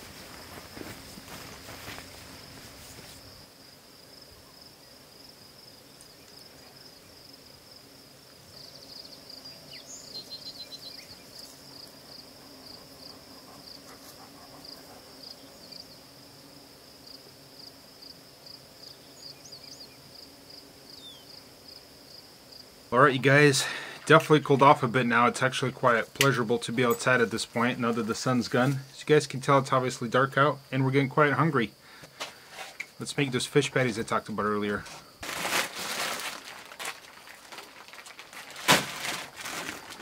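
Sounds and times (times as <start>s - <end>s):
crickets chirping: 0.0s - 40.0s
brief rustle: 34.8s - 40.0s.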